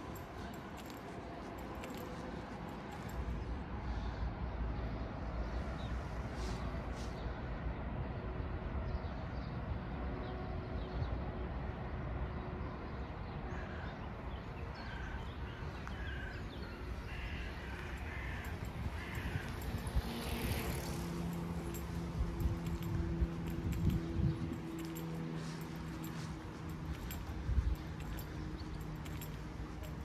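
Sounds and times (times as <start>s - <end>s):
crow cawing: 17.0s - 19.7s.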